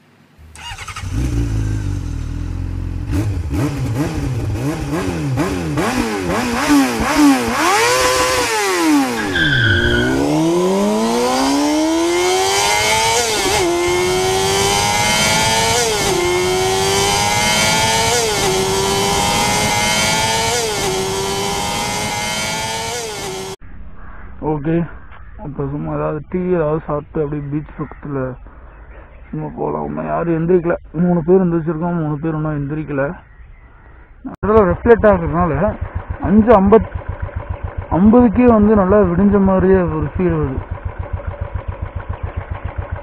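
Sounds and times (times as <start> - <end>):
engine revving and accelerating: 0.5 - 23.6.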